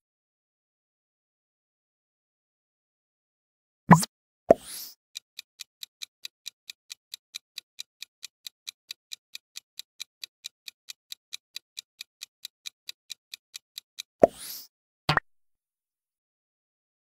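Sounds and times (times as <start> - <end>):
clock ticking: 5.2 - 14.2.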